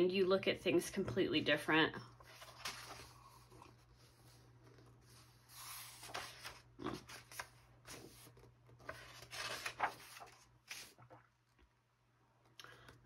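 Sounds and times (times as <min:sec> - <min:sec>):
hand rubbing paper pages: 0:02.2 - 0:11.2
page turning: 0:02.2 - 0:11.3.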